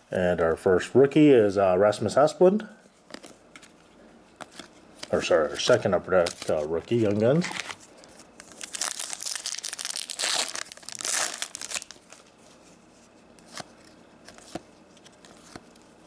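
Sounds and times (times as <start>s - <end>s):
foil wrapper tearing and crinkling: 8.4s - 12.3s.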